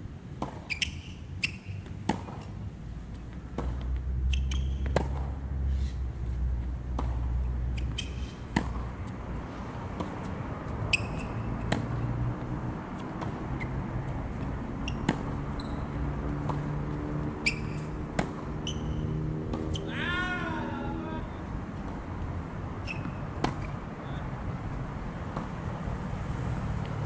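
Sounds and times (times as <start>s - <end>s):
tennis balls struck by rackets: 0.3s - 5.7s, 6.6s - 20.6s, 21.7s - 23.9s, 24.7s - 25.9s
balls bouncing on hard court: 0.4s - 5.5s, 6.6s - 9.2s, 9.8s - 20.4s, 22.8s - 24.2s.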